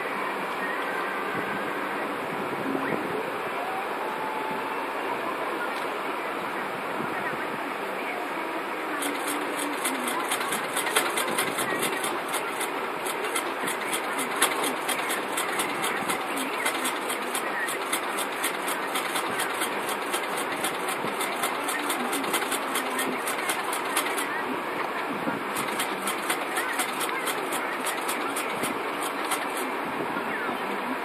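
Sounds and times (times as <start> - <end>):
mechanical whirr: 9.0 - 24.4, 25.5 - 29.7
rapid even ticking: 9.0 - 24.4, 25.5 - 29.6.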